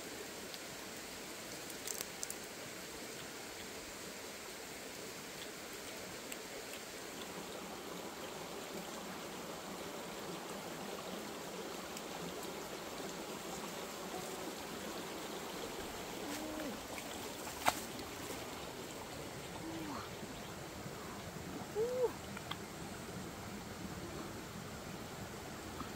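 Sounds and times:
running water rushing: 0.0s - 25.9s
short low calls: 21.6s - 22.3s.

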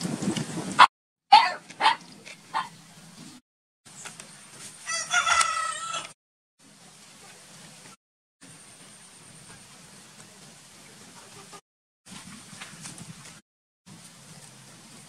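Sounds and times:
rooster crowing: 4.8s - 6.2s.

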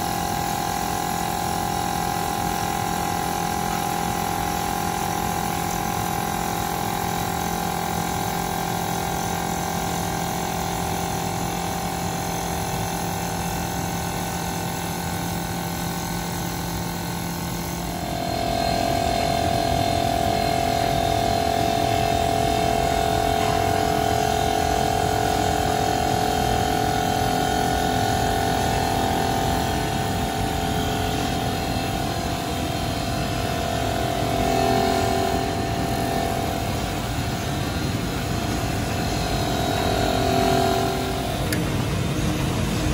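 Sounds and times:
high machine tone: 15.3s - 42.9s
wood lathe running: 28.6s - 42.7s.

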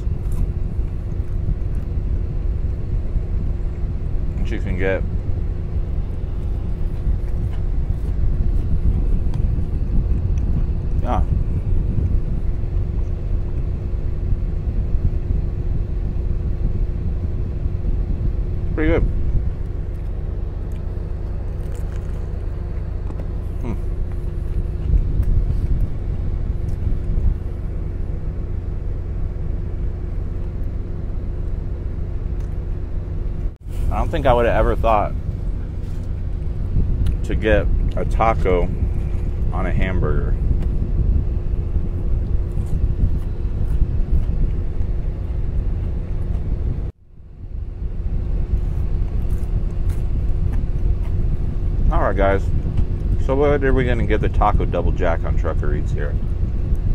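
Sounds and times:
idling truck rumble: 0.0s - 56.9s
faint chewing and handling noises: 0.1s - 2.0s, 5.7s - 11.0s, 19.5s - 27.8s, 33.7s - 39.6s, 41.8s - 46.5s, 48.2s - 51.7s
chewing clicks: 19.6s - 23.3s.

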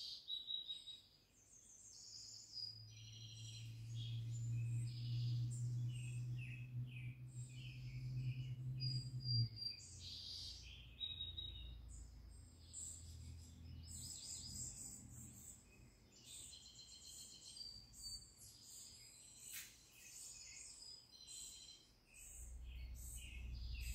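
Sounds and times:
birds chirping and trilling: 0.0s - 23.9s
low steady hum: 2.8s - 16.2s, 22.2s - 23.9s.

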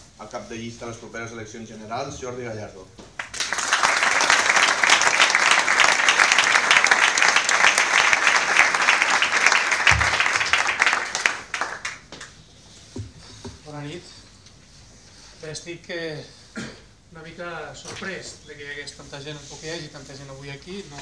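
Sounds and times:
crowd applauding: 3.2s - 12.2s.

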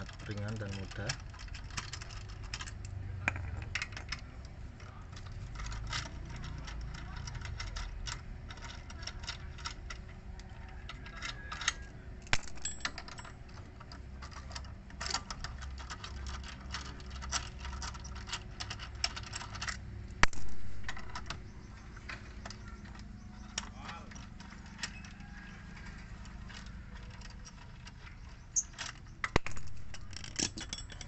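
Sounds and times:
lug nuts clicking and rattling: 0.0s - 31.0s
metal clank: 12.3s - 13.3s, 28.6s - 31.0s
ringing metal clank: 12.4s - 13.3s.

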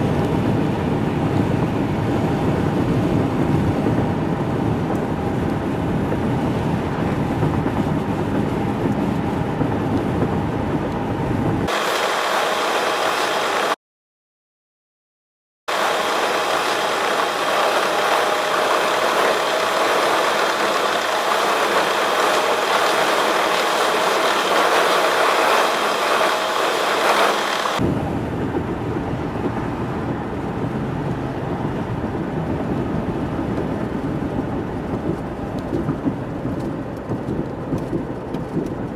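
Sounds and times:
car cabin road and engine noise: 0.0s - 13.8s, 15.7s - 38.9s
sped-up hissy cabin noise: 4.6s - 13.8s, 15.7s - 30.8s.

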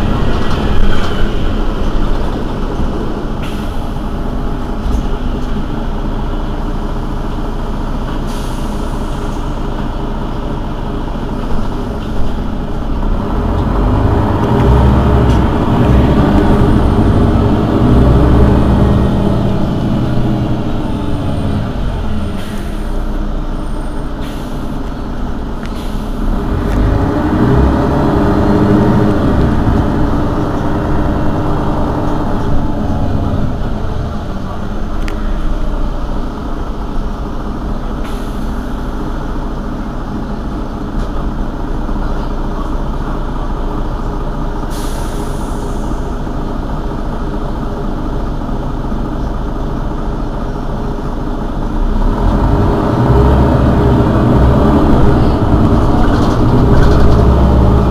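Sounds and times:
bus diesel engine idling: 0.0s - 57.9s
compressed air hiss: 44.7s - 46.1s.

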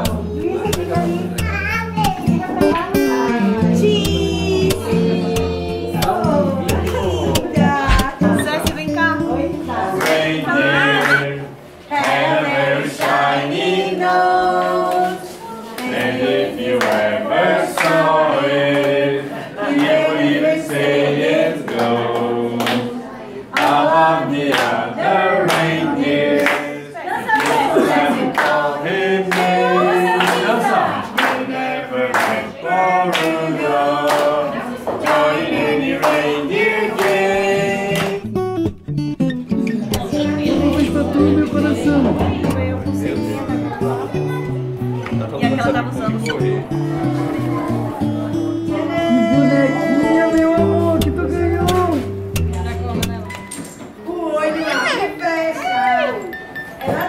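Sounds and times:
choir singing held notes: 9.4s - 38.3s, 46.2s - 52.5s
people clapping in time: 17.8s - 18.0s, 29.3s - 29.6s, 31.2s - 31.4s, 32.1s - 32.4s, 36.9s - 37.3s, 37.9s - 38.2s.

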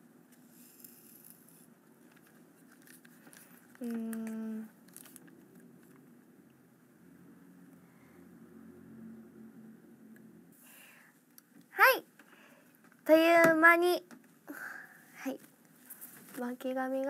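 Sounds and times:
woman humming: 3.8s - 4.7s.

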